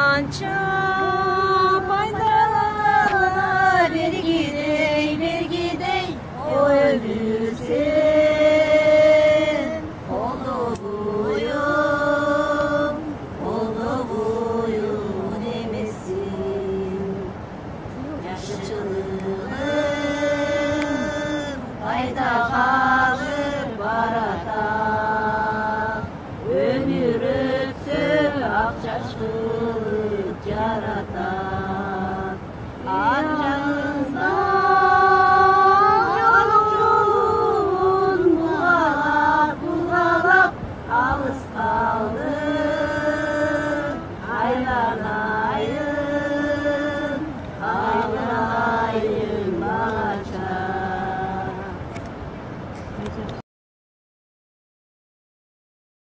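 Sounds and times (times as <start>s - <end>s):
woman singing unaccompanied: 0.0s - 51.9s.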